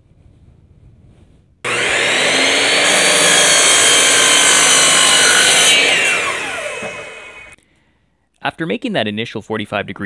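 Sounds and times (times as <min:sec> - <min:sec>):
miter saw motor running: 0:01.7 - 0:07.6
saw blade cutting wood: 0:01.7 - 0:07.6.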